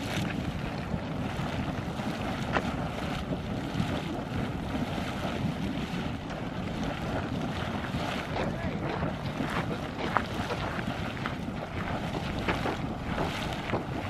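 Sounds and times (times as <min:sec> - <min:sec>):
geyser water splashing and hissing: 0:00.0 - 0:14.0
wind rumble on microphone: 0:00.0 - 0:14.0.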